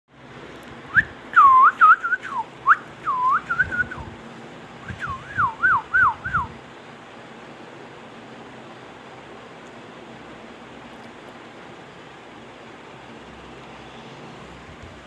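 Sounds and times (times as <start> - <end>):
parakeet whistling: 0.9 - 4.0, 4.9 - 6.5.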